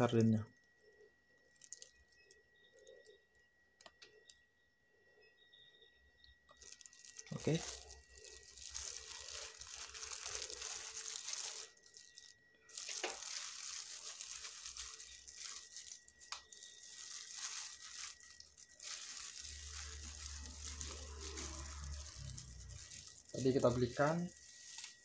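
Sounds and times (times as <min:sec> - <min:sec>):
plastic bag crinkling: 0:00.0 - 0:04.4, 0:06.5 - 0:25.0.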